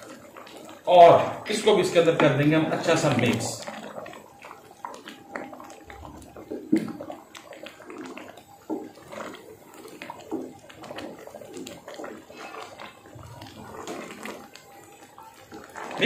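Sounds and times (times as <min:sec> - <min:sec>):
wet squelching of thick gravy: 0:00.0 - 0:16.0.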